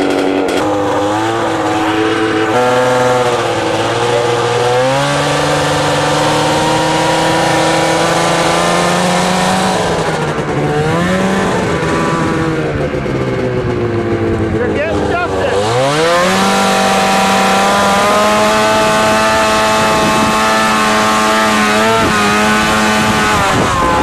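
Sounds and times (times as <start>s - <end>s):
snowmobile engine revving: 0.0s - 24.0s.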